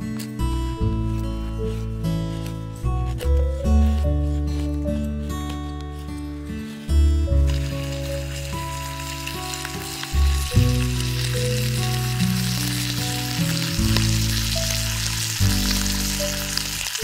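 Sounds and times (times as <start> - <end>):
bacon sizzling in a frying pan: 7.5 - 17.0.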